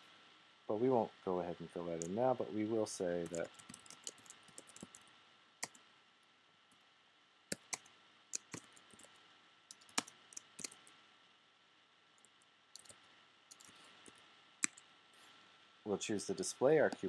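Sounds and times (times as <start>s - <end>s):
typing on computer keyboard: 3.2s - 5.0s, 7.5s - 10.9s, 12.2s - 13.7s.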